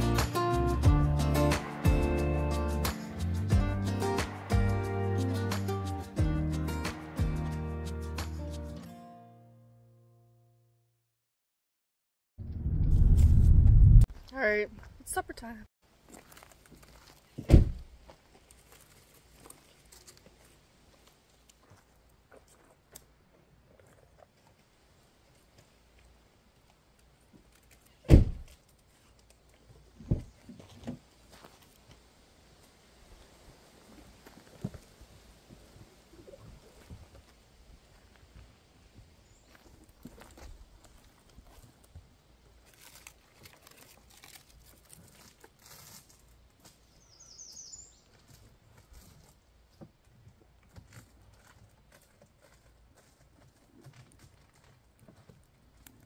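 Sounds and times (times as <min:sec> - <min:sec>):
loud thump: 0:17.5 - 0:17.8
light scuffing: 0:30.1 - 0:32.0
small fire crackling: 0:31.0 - 0:46.6
bird high falling chirps: 0:47.0 - 0:48.0.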